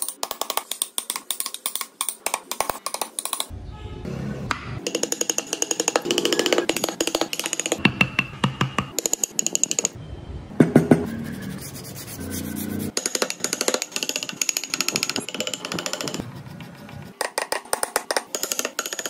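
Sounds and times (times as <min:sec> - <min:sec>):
chisel tapping and scraping wood: 0:04.8 - 0:09.9, 0:13.0 - 0:16.2, 0:16.9 - 0:19.0.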